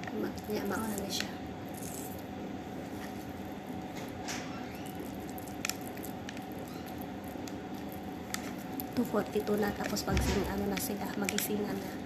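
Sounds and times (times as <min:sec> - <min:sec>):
steady low hum: 0:00.0 - 0:12.0
filling squishing by hand: 0:00.3 - 0:02.3, 0:04.7 - 0:10.1.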